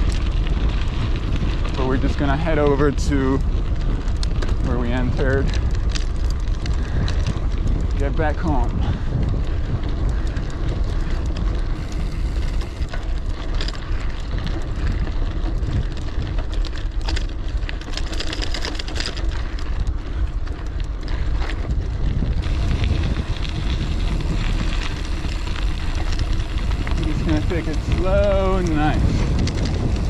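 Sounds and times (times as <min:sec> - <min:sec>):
bike tyres rolling on dirt trail: 0:00.0 - 0:30.0
grit crackling and small knocks: 0:00.0 - 0:30.0
wind buffeting microphone: 0:00.0 - 0:30.0
tyres rushing on pavement: 0:22.4 - 0:30.0.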